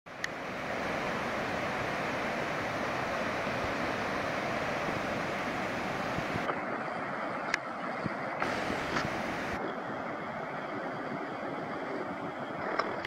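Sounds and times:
waterfall rushing: 0.1 - 7.5, 8.4 - 9.6.

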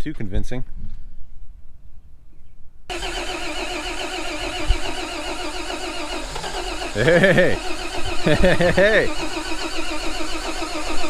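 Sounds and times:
starter motor cranking engine: 2.9 - 11.0.

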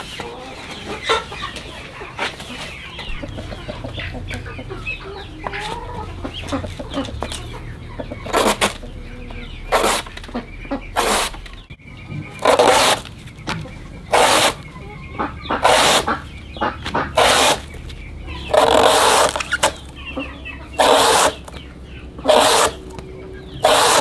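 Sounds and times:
chickens clucking: 0.0 - 24.0
machete cutting banana trunk: 12.4 - 13.1, 14.1 - 14.6, 15.6 - 16.2, 16.9 - 17.7, 18.5 - 19.8, 20.8 - 21.5, 22.2 - 22.8, 23.6 - 24.0.

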